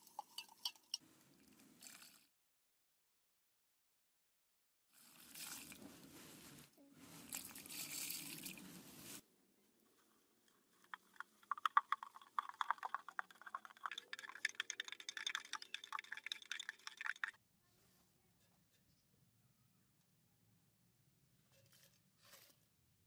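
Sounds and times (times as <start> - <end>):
granules pouring into water: 5.0 - 5.8, 7.4 - 8.6, 10.9 - 17.4.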